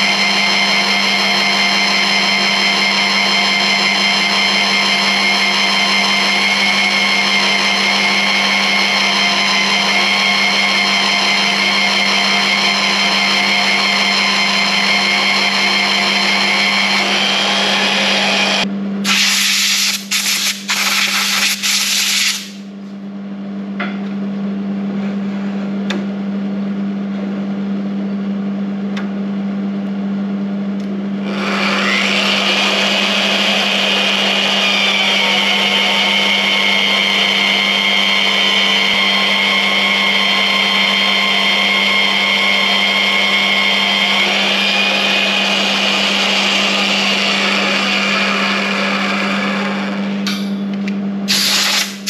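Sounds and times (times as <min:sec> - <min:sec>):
harsh grinding: 0:00.0 - 0:19.2, 0:31.2 - 0:50.3
drill press motor whine: 0:00.0 - 0:19.8, 0:31.2 - 0:52.0.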